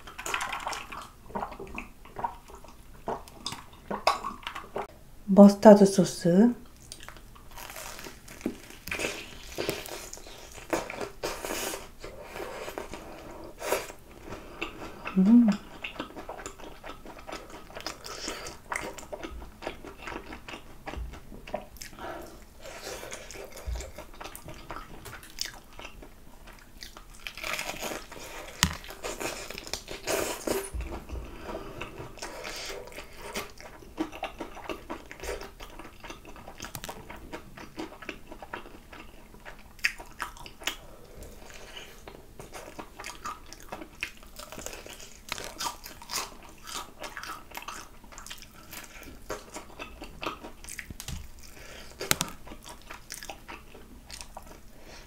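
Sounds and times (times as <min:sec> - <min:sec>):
fried chicken being bitten and chewed: 0:00.0 - 0:04.9, 0:06.6 - 0:13.0, 0:14.6 - 0:30.9, 0:31.8 - 0:54.7
crunches of fried crust: 0:06.8 - 0:11.2.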